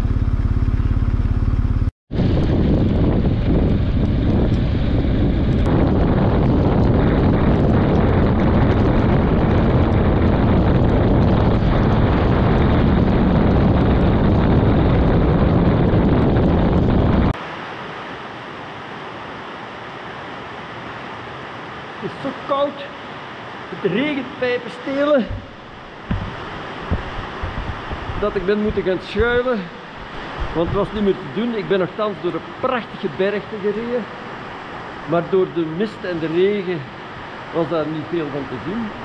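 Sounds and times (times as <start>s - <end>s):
wind buffeting microphone: 2.1s - 17.4s, 24.4s - 32.6s
heavy rain hissing: 21.8s - 39.0s.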